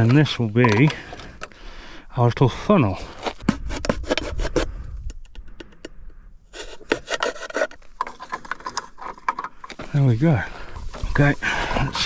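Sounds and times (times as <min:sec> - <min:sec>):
knife sawing plastic bottle: 0:03.1 - 0:04.8, 0:06.5 - 0:09.2.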